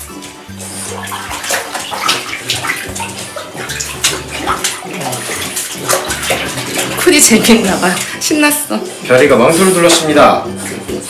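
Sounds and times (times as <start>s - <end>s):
dog splashing bathwater: 0.0s - 11.0s.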